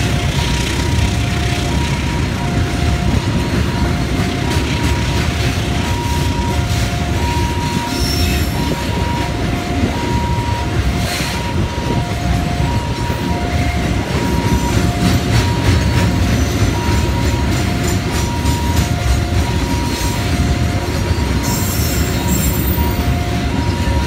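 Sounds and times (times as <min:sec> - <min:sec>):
level-crossing two-tone alarm: 0:00.0 - 0:24.0
train wheels rumbling on rails: 0:00.0 - 0:24.0.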